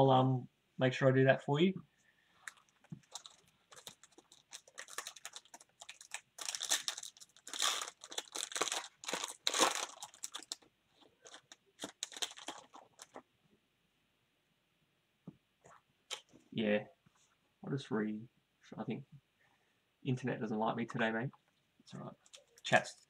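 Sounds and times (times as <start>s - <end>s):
foil wrapper crinkling and tearing: 2.4s - 13.2s.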